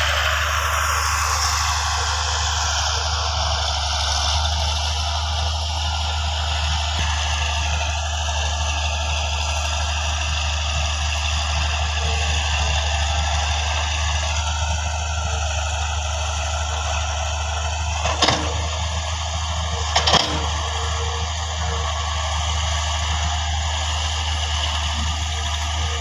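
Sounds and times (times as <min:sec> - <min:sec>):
diesel engines running: 0:00.0 - 0:26.0
excavator loading soil: 0:00.0 - 0:26.0.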